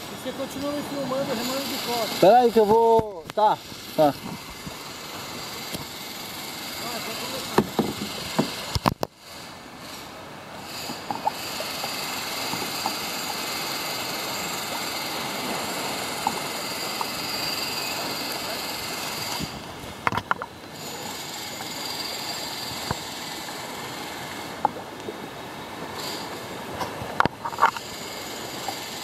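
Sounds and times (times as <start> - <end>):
kayak hissing over water: 0.0 - 29.0
paddle splashes and knocks: 7.5 - 9.1.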